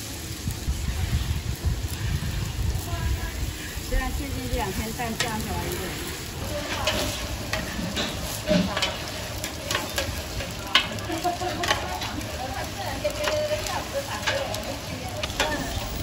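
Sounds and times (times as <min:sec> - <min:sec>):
food sizzling in a frying pan: 0:00.0 - 0:16.0
spatula scraping a pan: 0:03.6 - 0:16.0
metal clinking on a pan: 0:05.0 - 0:05.7, 0:06.5 - 0:16.0.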